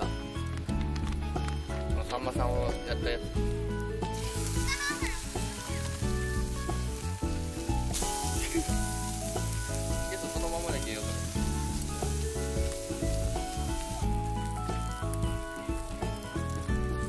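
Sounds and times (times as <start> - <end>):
squid sizzling in pan: 3.4 - 17.0.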